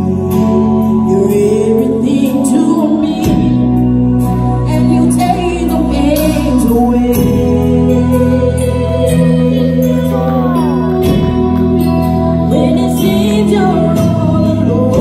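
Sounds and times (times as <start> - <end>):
keyboard chords: 0.0 - 15.0
woman singing gospel: 4.6 - 15.0.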